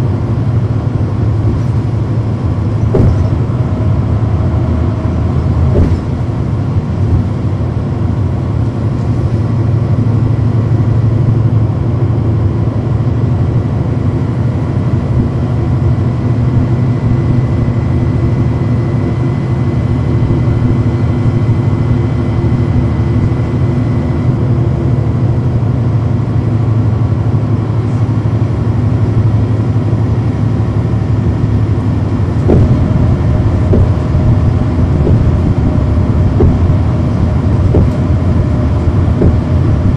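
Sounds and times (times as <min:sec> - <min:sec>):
bus diesel engine drone: 0:00.0 - 0:39.9
knocks: 0:02.9 - 0:03.5, 0:05.7 - 0:06.2, 0:32.5 - 0:38.3, 0:39.0 - 0:39.9.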